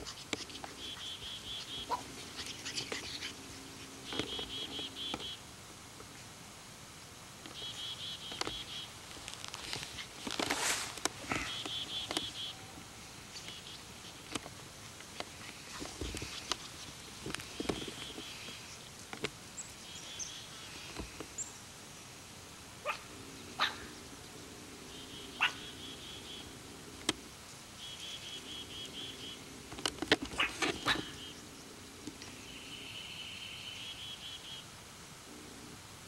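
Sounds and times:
birds trilling: 0:00.0 - 0:05.4, 0:07.5 - 0:09.0, 0:09.6 - 0:14.4, 0:22.8 - 0:26.8, 0:27.8 - 0:29.6, 0:30.2 - 0:34.6
puppy barking: 0:01.6 - 0:02.1, 0:22.8 - 0:23.9, 0:25.4 - 0:25.8, 0:30.4 - 0:31.2.

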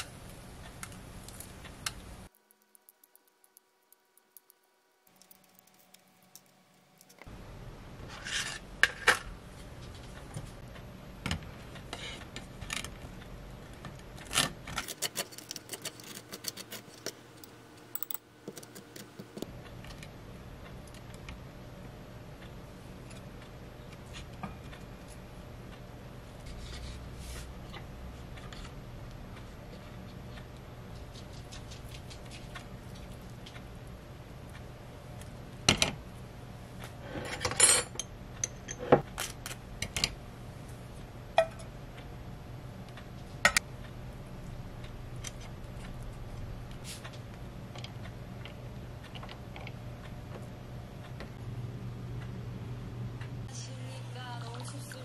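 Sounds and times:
low steady hum: 0:00.0 - 0:55.0
utensils clicking on plate: 0:14.3 - 0:19.5
soft rubbing and scraping: 0:26.4 - 0:27.5.

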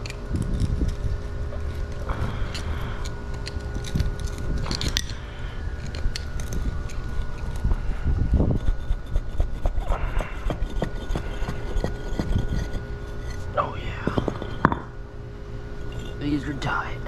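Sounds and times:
screwdrivers clicking on pavers: 0:00.0 - 0:07.7
screwdriver scraping pavers: 0:00.0 - 0:14.8
steady background hum: 0:00.0 - 0:17.0.

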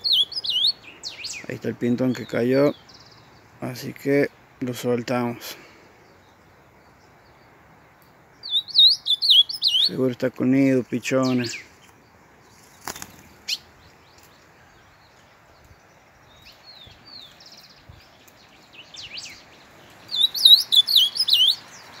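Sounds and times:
rapid whistled bird notes: 0:00.0 - 0:01.5, 0:08.4 - 0:10.0, 0:15.7 - 0:22.0
songbird chirps: 0:00.0 - 0:22.0.

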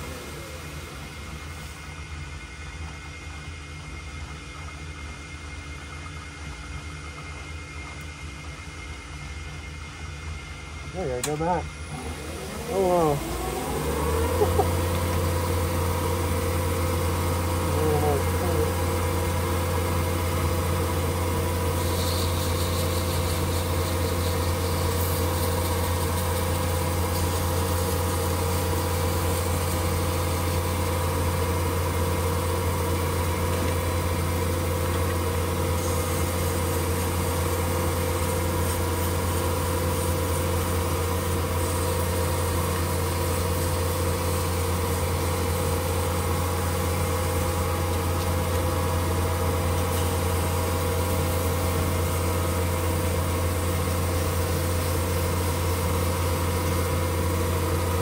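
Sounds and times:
metal lathe humming: 0:11.2 - 0:58.0
sandpaper on spinning metal: 0:21.0 - 0:30.7.

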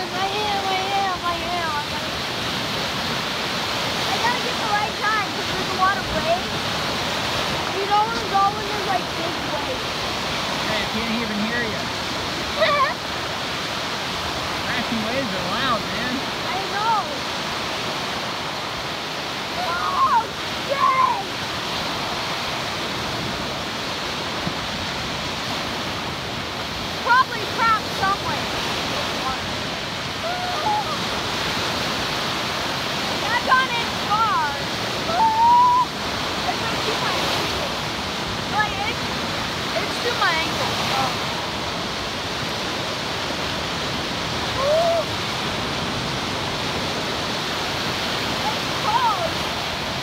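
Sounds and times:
waves breaking on sand beach: 0:00.0 - 0:50.0
voice-like call: 0:35.1 - 0:35.9.

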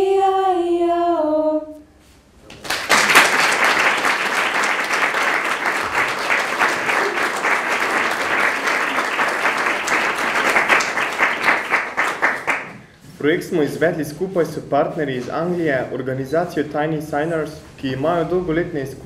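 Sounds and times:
audience applauding: 0:02.5 - 0:12.9.

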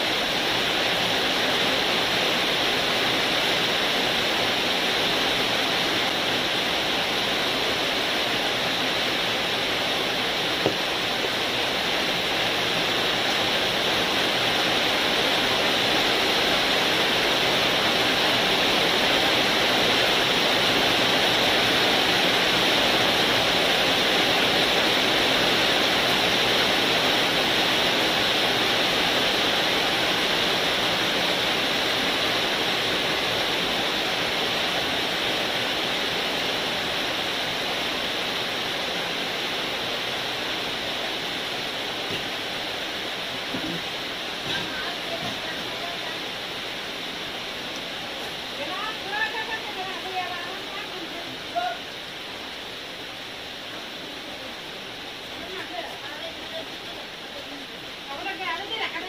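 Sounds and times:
steady rushing noise: 0:00.0 - 0:59.0.

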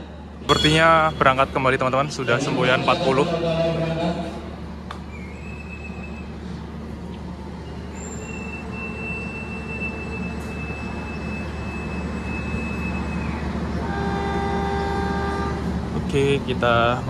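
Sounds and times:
train low hum: 0:00.0 - 0:17.0
long high whistle blast: 0:07.8 - 0:14.9.

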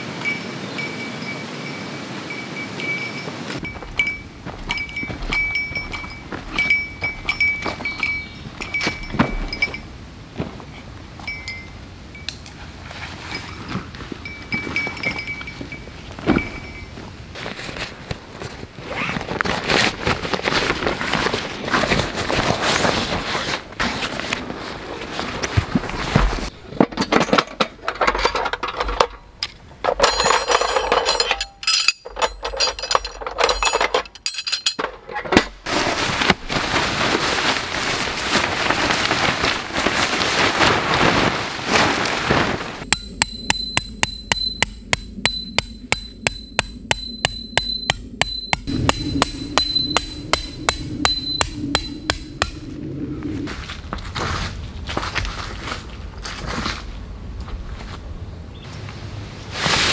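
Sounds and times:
nylon tarp rustling: 0:16.1 - 0:26.6, 0:35.4 - 0:42.9, 0:59.4 - 0:59.9
hammer blows ringing: 0:42.9 - 0:52.7.

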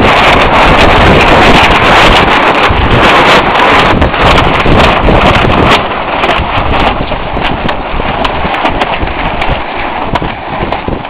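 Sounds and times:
wind gusting on microphone: 0:00.0 - 0:11.0.

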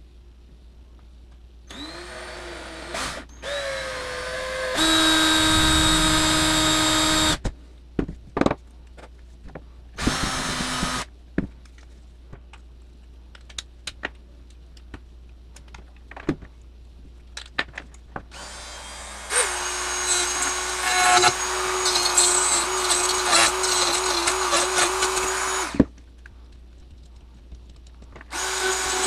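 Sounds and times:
cordless drill boring plastic: 0:01.7 - 0:07.4, 0:10.0 - 0:11.0, 0:18.3 - 0:25.8, 0:28.3 - 0:29.0.

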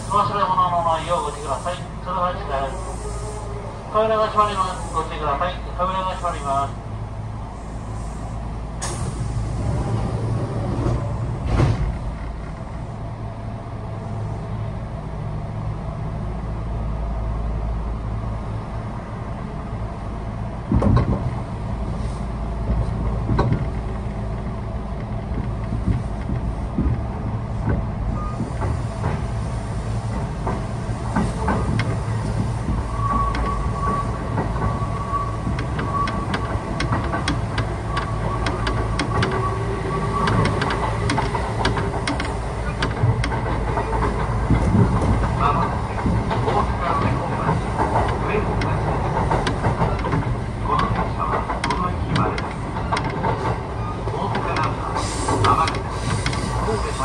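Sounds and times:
train wheels and motors rumbling: 0:00.0 - 0:57.0
wheels clacking over rail joints: 0:22.6 - 0:57.0.

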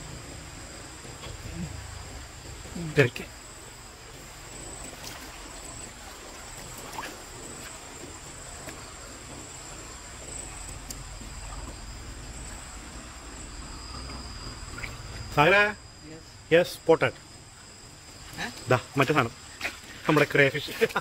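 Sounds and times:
low steady rumble: 0:00.0 - 0:18.3
night insects trilling: 0:00.0 - 0:21.0
faint clicks: 0:10.6 - 0:11.8.

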